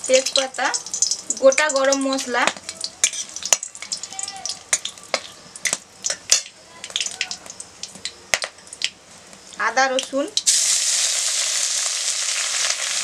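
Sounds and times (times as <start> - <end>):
spices sizzling in hot oil: 0.0 - 13.0
metal spatula stirring in pan: 0.1 - 7.6.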